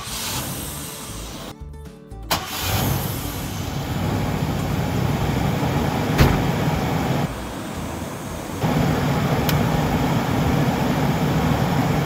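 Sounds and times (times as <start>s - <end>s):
car engine starting and running: 0.0s - 1.5s, 2.3s - 12.0s
background music: 0.1s - 4.0s.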